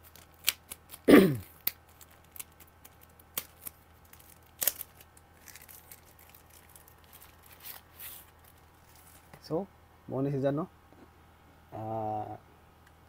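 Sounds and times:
protective wrap rustling and crinkling: 0.0 - 9.4.

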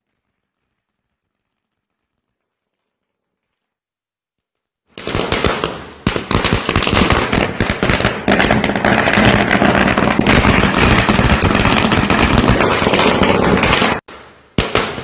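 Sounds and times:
firecrackers crackling: 4.9 - 15.0.

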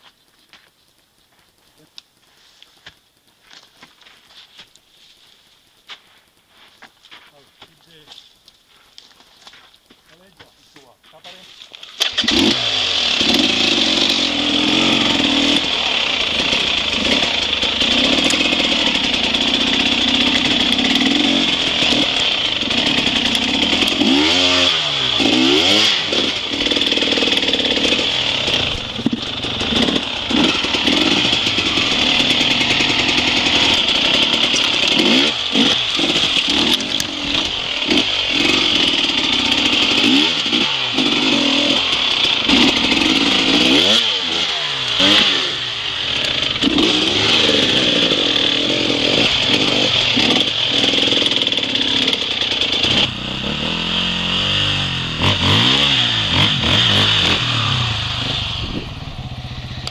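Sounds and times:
dirt bike engine revving: 12.0 - 59.9.

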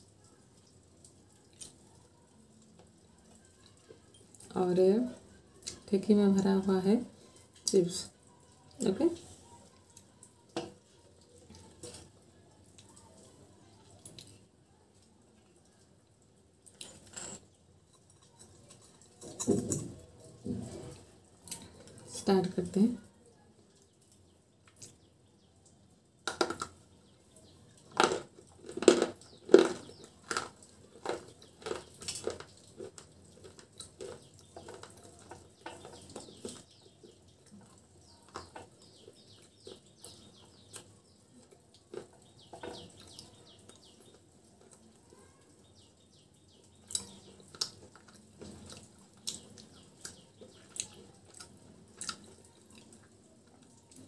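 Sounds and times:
sharp crackles: 28.0 - 36.7.

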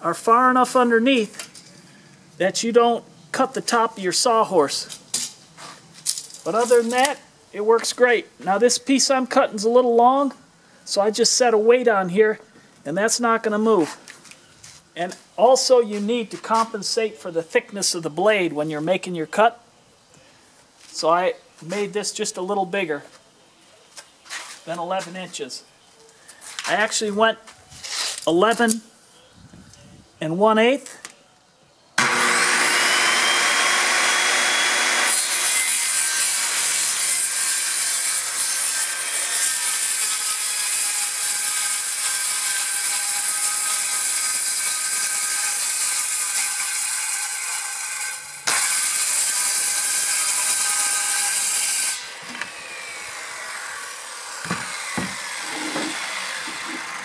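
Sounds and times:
circular saw cutting board: 32.0 - 47.4, 48.0 - 57.0
knocks of board handled: 54.4 - 56.8.

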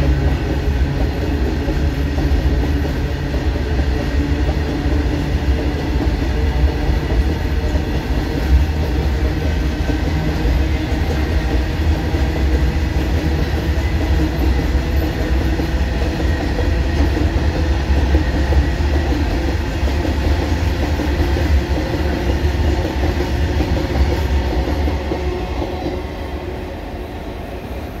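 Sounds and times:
freight train rolling past: 0.0 - 28.0.

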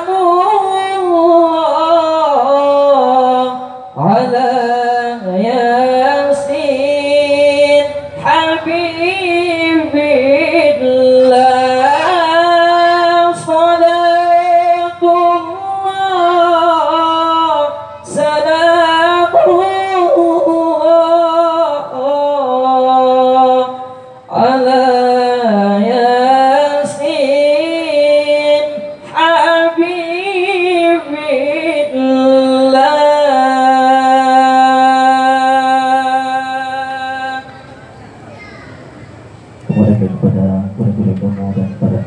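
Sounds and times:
man chanting devotional melody: 0.0 - 37.5, 39.7 - 42.0.

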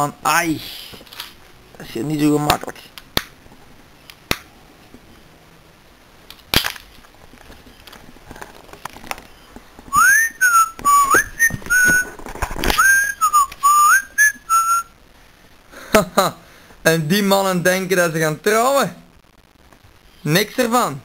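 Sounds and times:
person whistling a tune: 9.9 - 12.1, 12.8 - 14.9.

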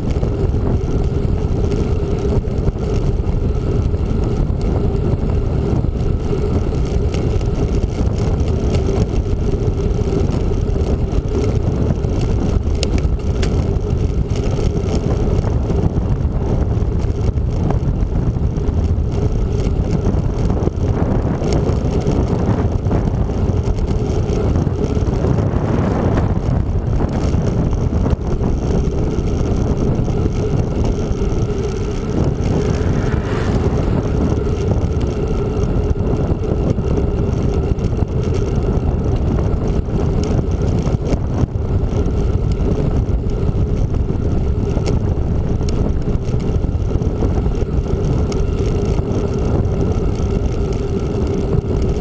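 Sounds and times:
tyres rolling on asphalt: 0.0 - 52.0
wind on microphone: 0.0 - 52.0.

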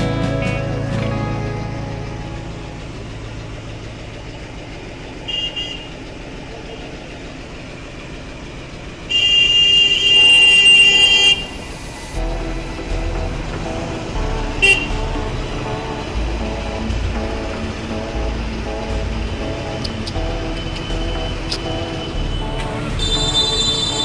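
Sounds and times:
street traffic: 0.0 - 24.0
vehicle horn blasts: 5.2 - 6.0, 9.1 - 12.6, 14.5 - 15.2, 19.7 - 24.0.

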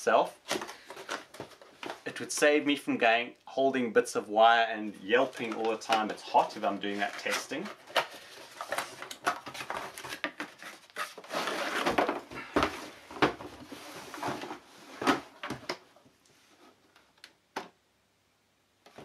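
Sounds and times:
cardboard flaps scraping and rustling: 5.2 - 15.7.

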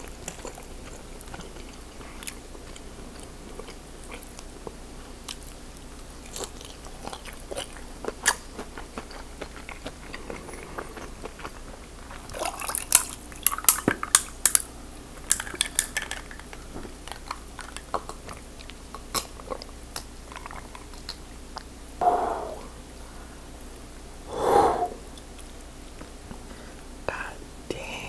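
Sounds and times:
quiet chewing: 0.0 - 14.2, 16.8 - 22.7.

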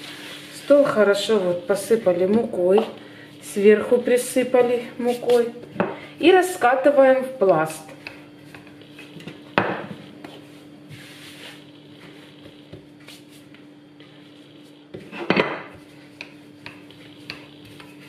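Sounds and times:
faint steady hum: 0.0 - 18.0
rolling pin knocking on countertop: 2.2 - 3.0, 9.6 - 10.4.

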